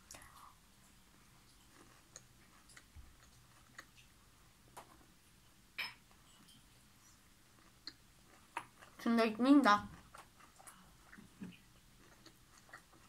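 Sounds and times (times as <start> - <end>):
person chewing with mouth clicks: 0.0 - 5.1, 6.4 - 9.0, 9.9 - 13.0.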